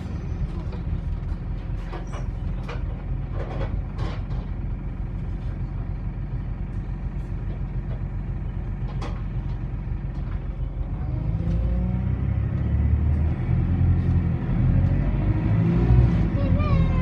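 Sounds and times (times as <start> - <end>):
bus engine rumble: 0.0 - 17.0.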